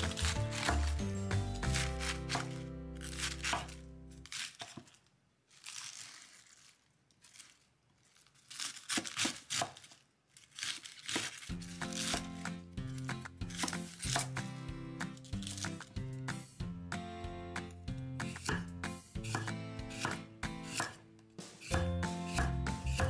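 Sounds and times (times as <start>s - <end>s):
background music: 0.0s - 4.3s, 11.5s - 23.0s
knife cutting cabbage on board: 0.0s - 5.0s, 8.6s - 9.8s, 10.6s - 16.0s, 17.6s - 23.0s.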